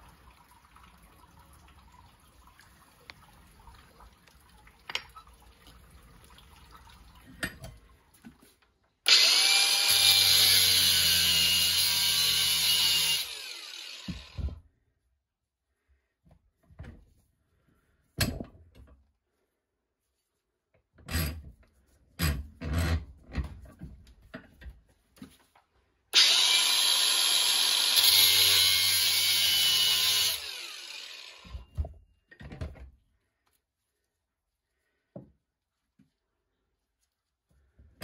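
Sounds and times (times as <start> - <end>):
angle grinder cutting metal: 9.1 - 14.6, 26.2 - 31.7.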